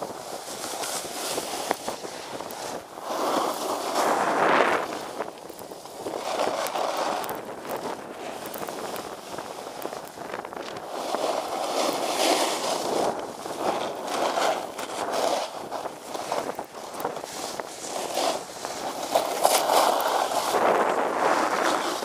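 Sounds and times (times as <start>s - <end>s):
snowboard carving through snow: 0.0s - 22.0s
wind on microphone: 0.0s - 22.0s.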